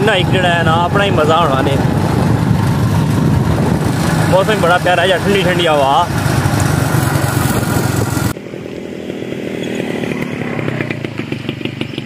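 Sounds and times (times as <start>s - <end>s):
motorcycle engine running: 0.0s - 12.0s
wind noise on microphone: 0.7s - 4.6s, 6.4s - 8.4s.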